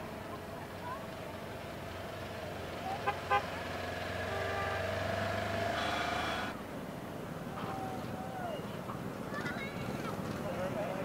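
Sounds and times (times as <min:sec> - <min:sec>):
utility vehicle engine passing: 0:00.5 - 0:06.6
horn toots: 0:04.2 - 0:06.6.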